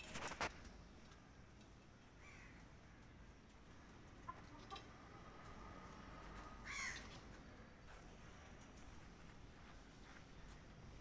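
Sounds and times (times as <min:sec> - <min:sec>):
chicken clucking: 0:04.1 - 0:05.2.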